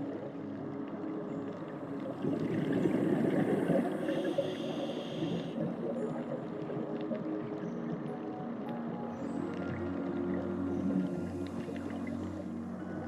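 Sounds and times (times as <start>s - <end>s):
exhaled bubbles rushing: 2.1s - 4.3s.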